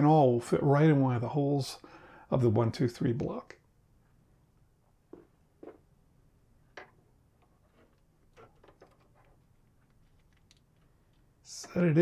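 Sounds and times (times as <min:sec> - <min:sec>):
small steel parts clicking: 0:08.4 - 0:11.3.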